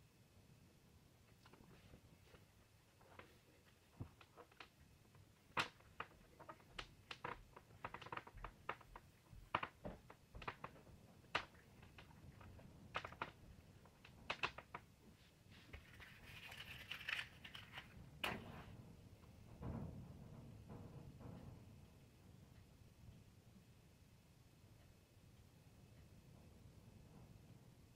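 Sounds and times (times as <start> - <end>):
matchbox rustle: 15.6 - 18.0.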